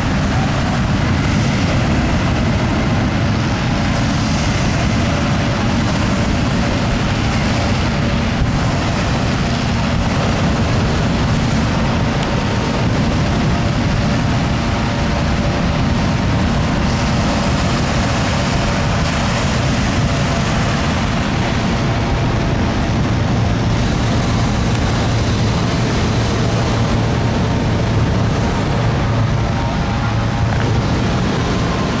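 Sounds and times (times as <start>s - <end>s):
constant rushing noise: 0.0s - 32.0s
engine drone: 0.0s - 32.0s.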